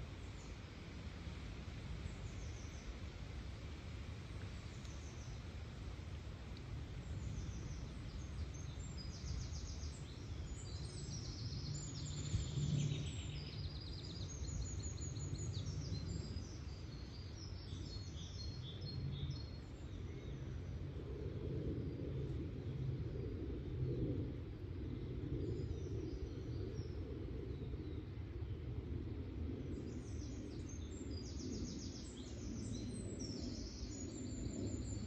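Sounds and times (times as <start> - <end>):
songbirds singing: 6.9 - 28.8, 29.5 - 35.0.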